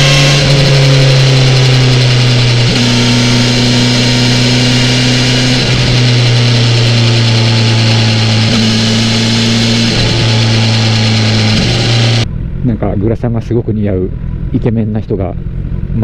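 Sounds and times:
motorcycle engine cruising: 0.0 - 16.0.

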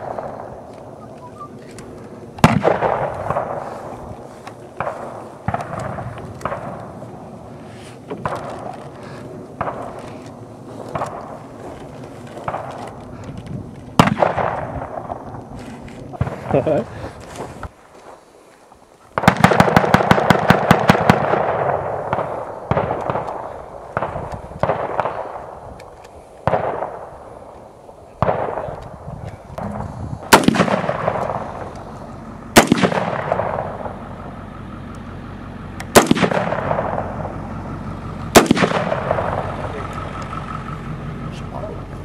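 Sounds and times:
gunshots with echo: 0.0 - 1.4, 2.3 - 11.6, 14.0 - 15.3, 19.2 - 25.7, 26.4 - 27.5, 28.1 - 34.4, 35.9 - 41.8
rapid gunfire: 2.4 - 3.8, 19.2 - 25.6, 29.6 - 31.8, 32.5 - 34.1, 35.9 - 37.4, 38.3 - 40.0.

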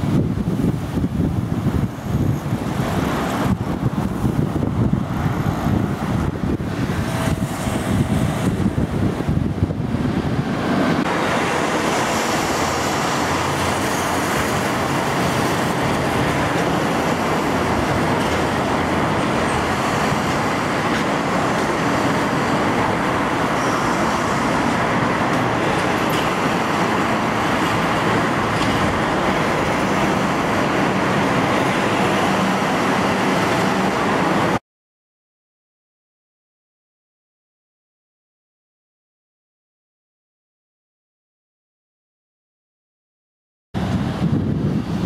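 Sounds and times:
busy road traffic: 0.0 - 34.6, 43.8 - 45.0.

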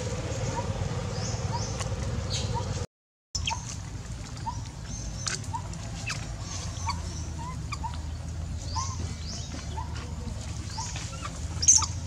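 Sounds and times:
low rumble: 0.0 - 2.8.

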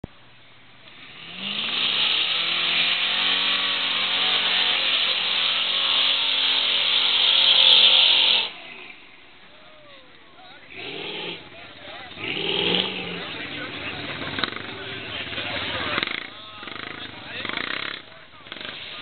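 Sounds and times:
wheels spinning in mud: 0.9 - 9.0
truck engine revving hard: 1.0 - 8.6, 10.7 - 19.0.

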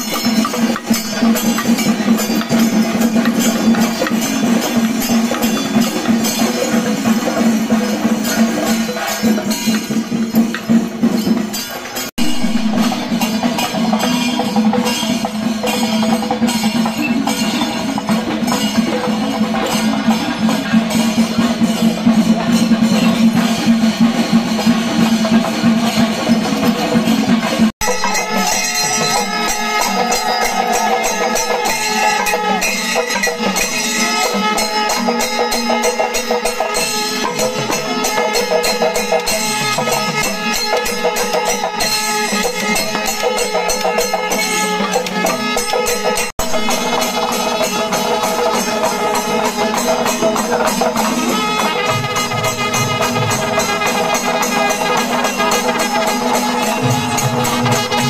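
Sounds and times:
pitched melody: 0.0 - 15.0, 27.4 - 58.0
fast jingling percussion: 0.0 - 58.0.

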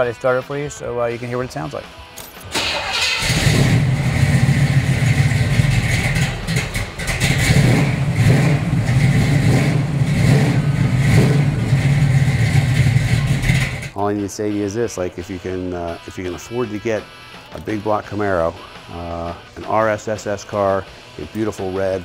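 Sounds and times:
starter motor cranking: 2.5 - 4.5
car engine running loudly: 3.2 - 13.9.

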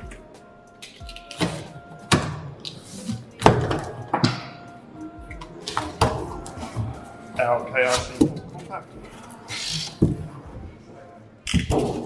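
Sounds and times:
utility knife slicing tape: 9.5 - 10.0.

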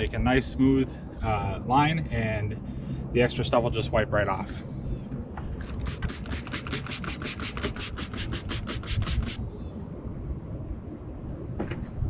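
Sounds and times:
spray bottle squirts: 5.6 - 9.4
gloved finger rubbing wet seam: 5.7 - 9.4.

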